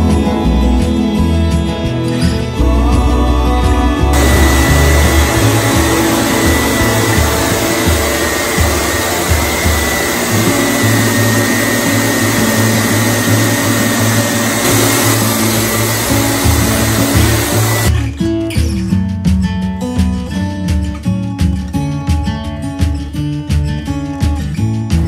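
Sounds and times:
acoustic guitar music: 0.0 - 25.0
machinery rushing hiss: 4.2 - 17.9.

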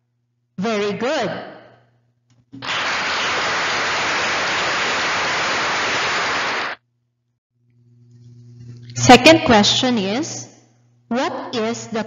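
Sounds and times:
hiss-like static noise: 2.6 - 6.8.

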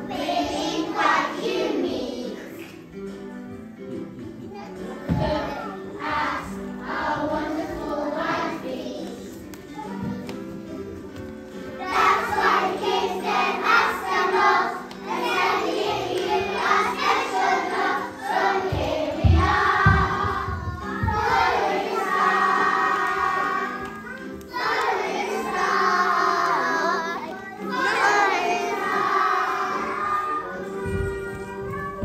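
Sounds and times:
children singing: 0.0 - 2.8, 4.7 - 11.0, 11.6 - 32.0
musical accompaniment: 0.0 - 32.0
low thumps: 18.6 - 21.5.

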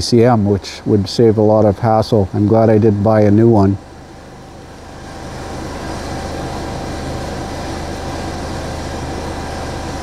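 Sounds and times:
car engine idling: 3.7 - 10.0.

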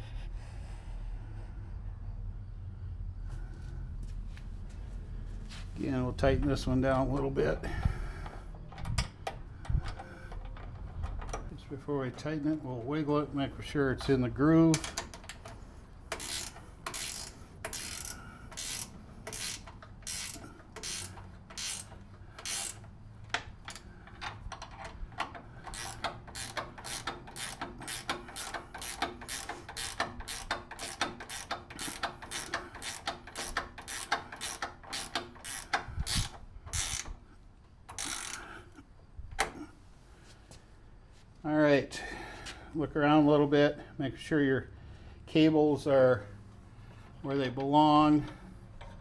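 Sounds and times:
ratchet wrench clicking: 14.0 - 37.3, 37.9 - 38.6.

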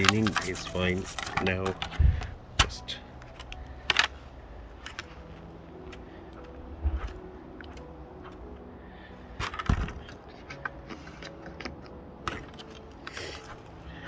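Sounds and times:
objects clattering: 0.0 - 4.2, 9.4 - 13.6.

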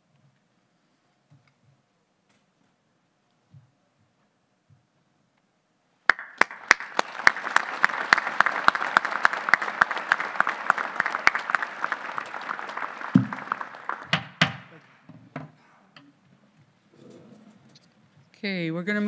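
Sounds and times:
audience applauding: 6.1 - 14.9.

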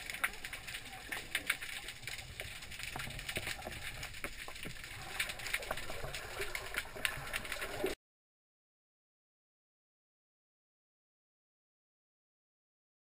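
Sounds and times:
muffled underwater water rumble: 0.0 - 8.0
small clicks and crackles: 0.0 - 8.0.

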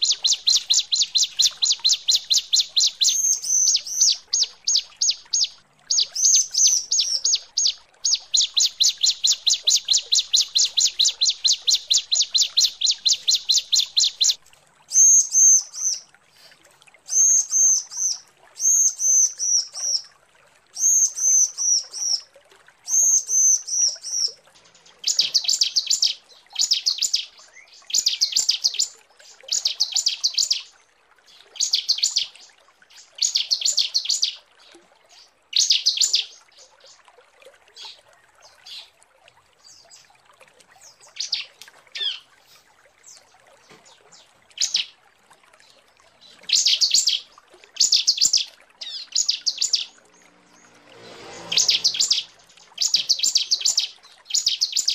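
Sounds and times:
high whistled bird notes: 50.6 - 54.9
buzzy bird trills: 51.4 - 54.9.

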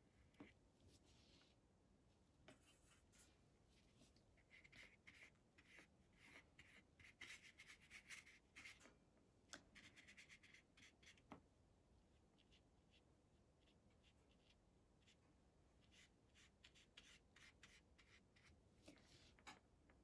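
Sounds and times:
brush strokes on paper: 0.9 - 1.6.

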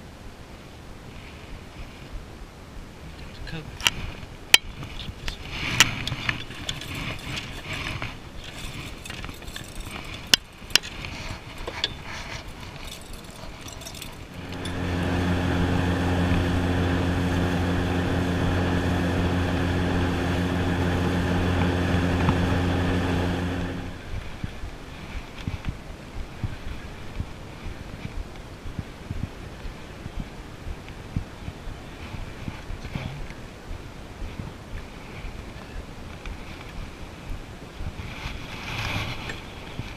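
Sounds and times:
fishing gear clicking and knocking: 3.8 - 14.9
boat motor running: 4.6 - 24.7.

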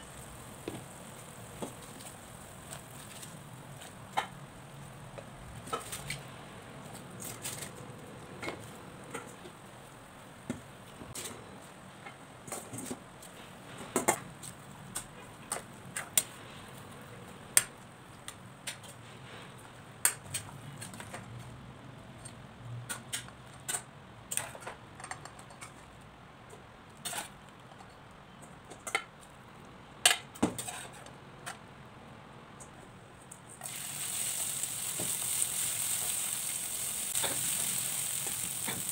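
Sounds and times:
sizzling in hot oil: 0.0 - 3.2, 33.6 - 38.9.

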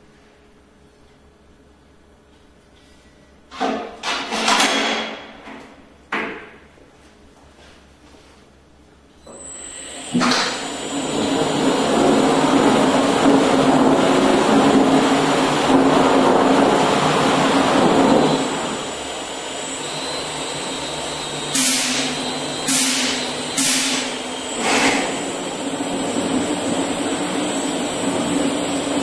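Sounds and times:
brush finishing machine whirring: 9.3 - 29.0.

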